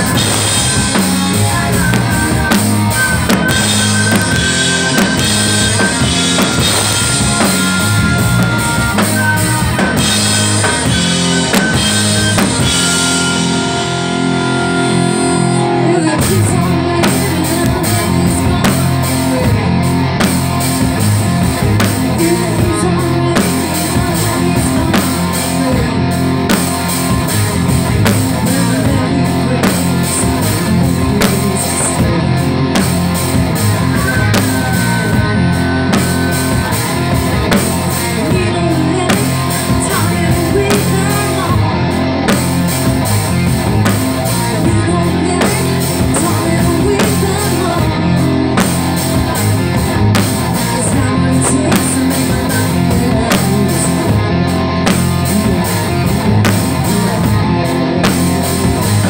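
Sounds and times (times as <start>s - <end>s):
bass guitar: 0.0s - 59.0s
drum kit: 0.0s - 59.0s
electric guitar: 0.0s - 59.0s
woman singing: 12.3s - 19.8s, 22.0s - 26.2s, 28.3s - 32.8s, 37.8s - 42.0s, 44.5s - 48.5s, 50.6s - 54.2s, 55.0s - 57.3s.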